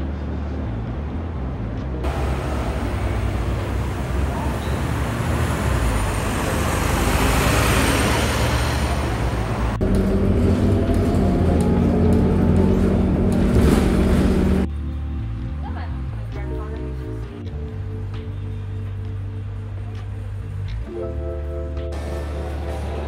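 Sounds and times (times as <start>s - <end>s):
bus engine drone from inside: 0.0s - 14.7s
bus rushing past: 0.0s - 14.7s, 21.8s - 23.0s
street traffic: 0.0s - 23.0s.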